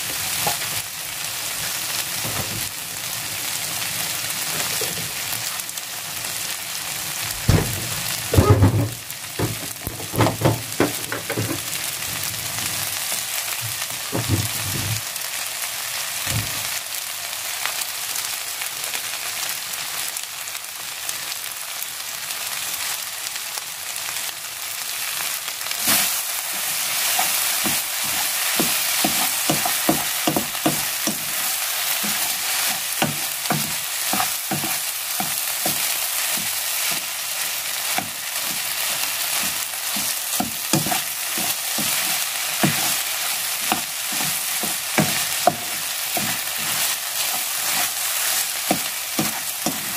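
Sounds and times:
fried rice sizzling in a pan: 0:00.0 - 0:49.9
spatula scraping a pan: 0:25.8 - 0:37.1, 0:37.8 - 0:49.9.

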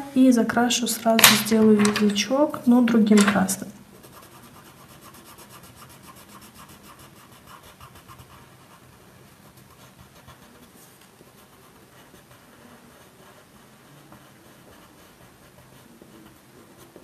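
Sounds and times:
pencil rubbing on paper: 0:03.9 - 0:17.0.

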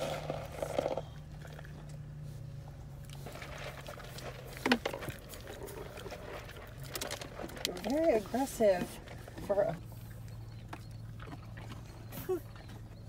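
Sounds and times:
donkeys snuffling and chewing: 0:00.0 - 0:13.0
steady low hum: 0:00.0 - 0:13.0.

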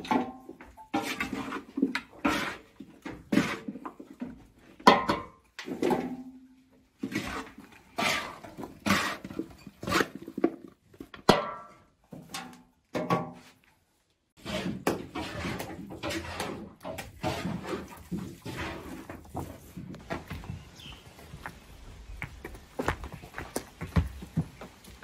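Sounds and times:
bowl scraping through feed: 0:07.0 - 0:10.5, 0:14.4 - 0:19.8.

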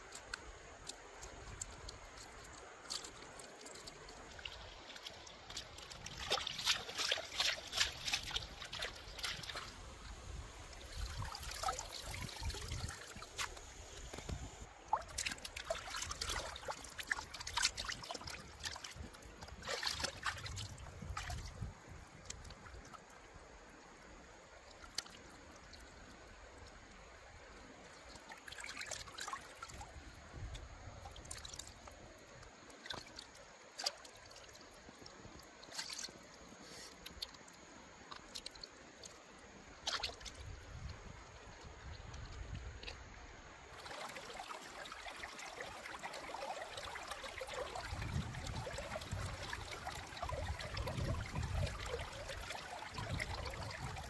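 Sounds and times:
short splashes and knocks: 0:00.0 - 0:10.0, 0:10.8 - 0:22.9, 0:39.8 - 0:43.0
water splashing and trickling: 0:00.0 - 0:54.0.

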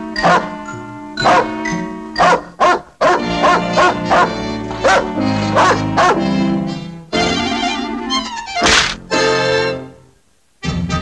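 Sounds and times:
orchestral cartoon music: 0:00.0 - 0:02.6, 0:03.2 - 0:10.0
cartoon dog barking: 0:00.2 - 0:00.6, 0:01.2 - 0:01.6, 0:02.2 - 0:06.2.

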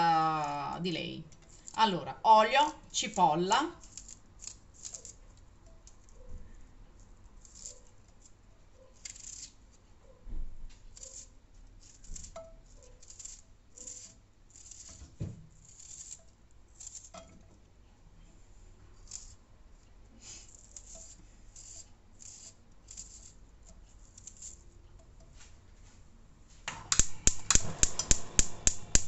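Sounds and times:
knife cutting onion: 0:03.7 - 0:06.3, 0:07.4 - 0:09.6, 0:10.8 - 0:17.3, 0:19.0 - 0:19.4, 0:20.2 - 0:25.5, 0:26.8 - 0:29.0
dull thumps: 0:15.0 - 0:15.5.

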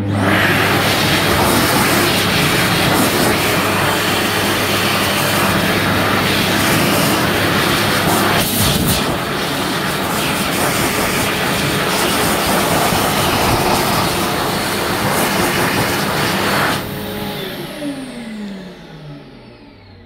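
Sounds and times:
hand dryer blowing air: 0:00.0 - 0:19.4
motor winding down whine: 0:16.8 - 0:20.0.

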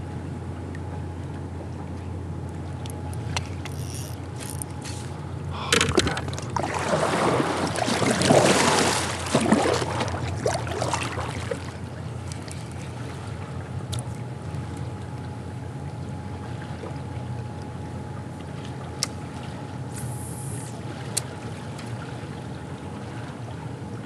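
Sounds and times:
water splashing and rushing: 0:05.8 - 0:13.4.

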